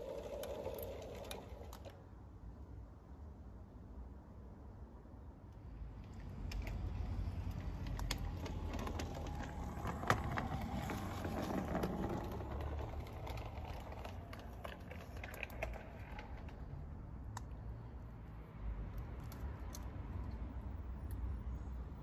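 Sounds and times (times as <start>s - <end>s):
model train rumbling on track: 0.0s - 1.9s, 7.7s - 16.7s
wheels clicking on rails: 0.0s - 2.0s, 6.0s - 17.5s.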